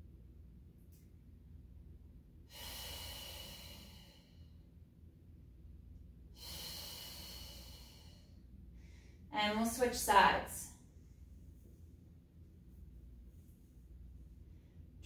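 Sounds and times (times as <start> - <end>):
woman breathing slowly: 2.4 - 4.7, 6.3 - 9.3.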